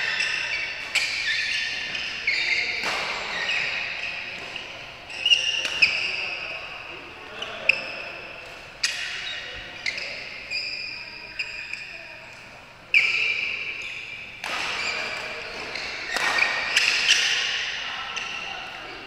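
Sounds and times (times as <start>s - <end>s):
rackets hitting shuttlecock: 0.0s - 6.3s, 8.4s - 9.7s, 13.0s - 18.4s.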